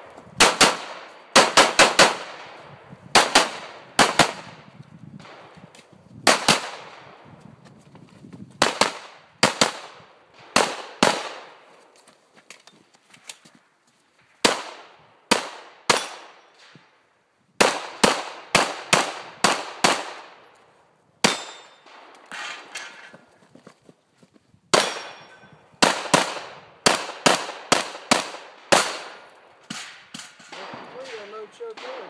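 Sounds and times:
pistol shots: 0.4s - 5.5s, 6.3s - 7.1s, 8.6s - 11.6s, 14.4s - 16.6s, 17.6s - 20.4s, 21.2s - 22.1s, 24.7s - 32.0s.

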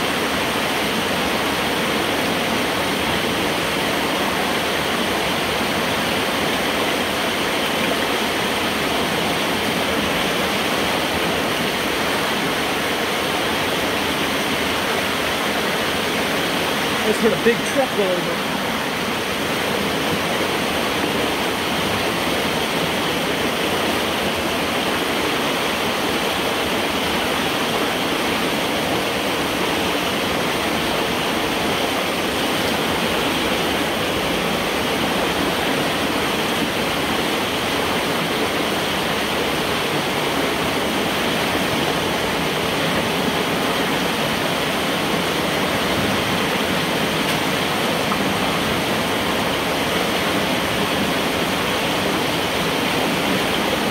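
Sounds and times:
water rushing through metal pipe: 0.0s - 53.9s
water splashing: 0.0s - 53.9s.

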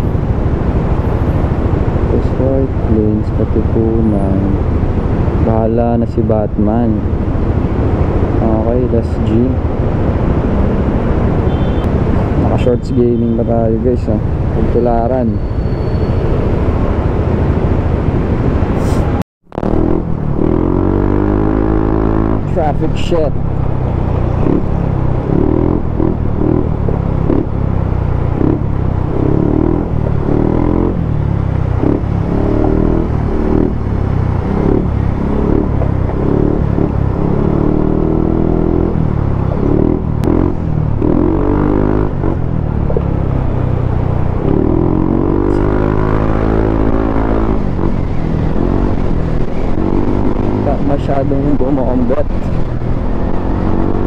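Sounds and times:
heavy low rumble: 16.3s - 54.0s.

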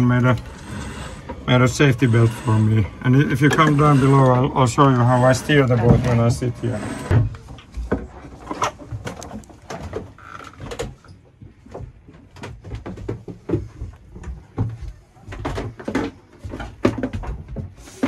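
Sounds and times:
knocks and bumps: 5.7s - 18.0s
footsteps on steps: 11.3s - 18.0s.

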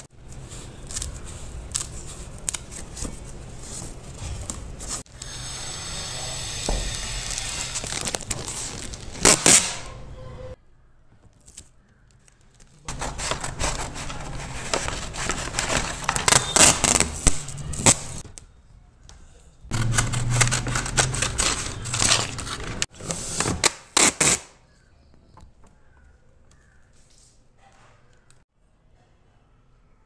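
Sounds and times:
packing tape ripping off roll: 6.6s - 9.9s, 12.9s - 18.2s, 19.7s - 24.6s.

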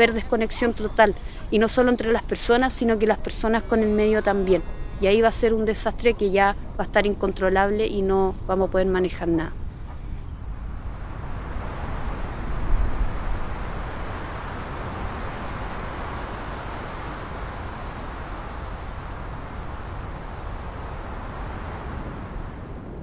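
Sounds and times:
wind blowing: 8.8s - 23.0s.

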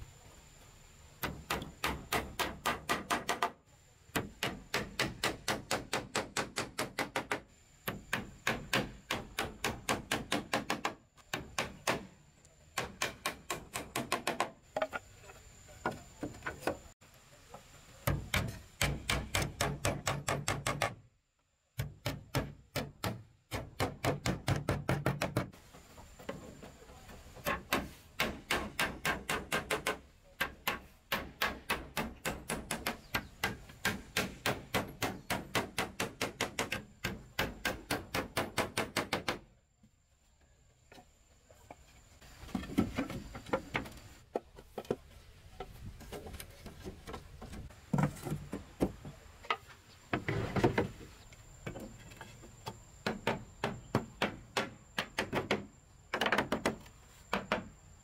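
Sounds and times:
hammer driving nails into wood: 27.4s - 39.4s.

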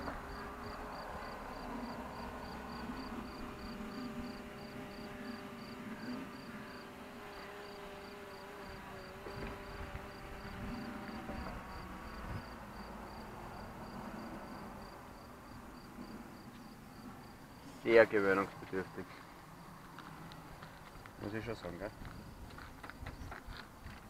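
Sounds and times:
faint hum of pitched tones: 0.0s - 19.7s.

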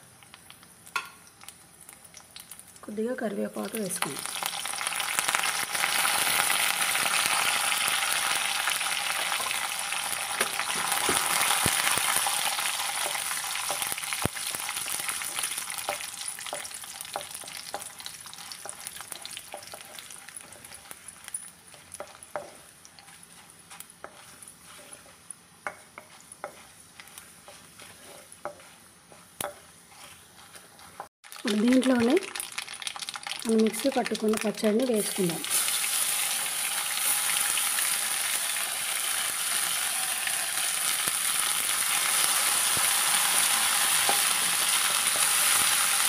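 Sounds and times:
spices sizzling in hot oil: 0.0s - 46.0s
wooden spatula stirring: 8.9s - 33.3s, 41.8s - 46.0s.

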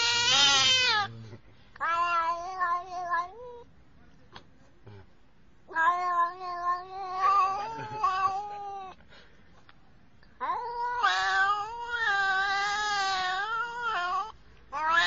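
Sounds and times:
cat yowling: 0.0s - 1.1s, 1.8s - 3.7s, 5.7s - 9.0s, 10.4s - 15.0s.

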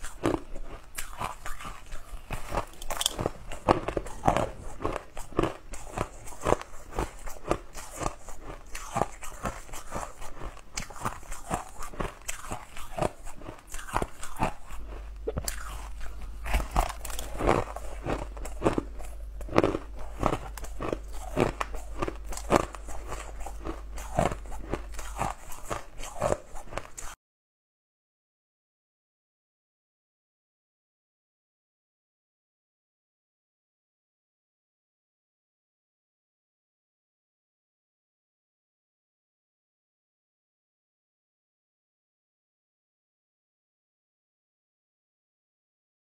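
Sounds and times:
ice crunching between teeth: 0.0s - 27.2s.

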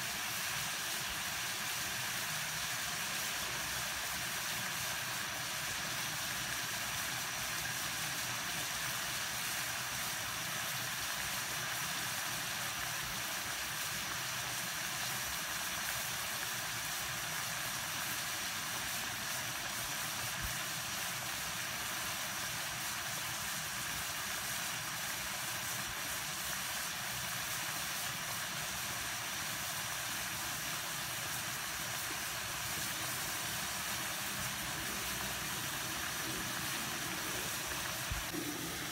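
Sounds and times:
water boiling in a pan: 0.0s - 38.9s.

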